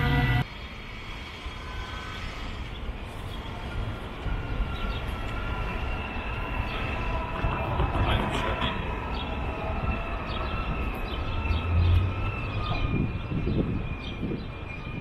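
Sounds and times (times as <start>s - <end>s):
loud multi-tone sound: 0.0s - 0.5s
city background noise: 0.0s - 15.0s
faint high squeal: 0.0s - 15.0s
train rumbling on track: 0.0s - 15.0s.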